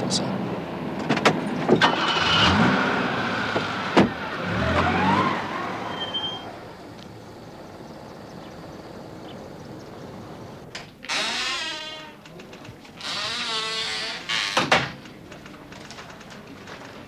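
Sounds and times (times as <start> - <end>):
car engine revving: 1.8 - 7.6.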